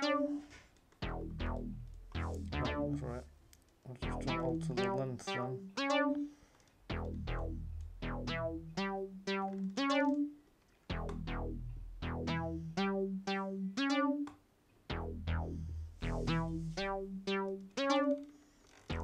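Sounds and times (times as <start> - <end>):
synth bass line: 0.0 - 0.4, 1.0 - 3.3, 4.0 - 6.3, 6.9 - 10.3, 10.9 - 14.3, 14.9 - 18.3
short synth notes: 0.0 - 3.2, 4.0 - 6.3, 6.9 - 10.3, 10.9 - 14.3, 14.9 - 18.3.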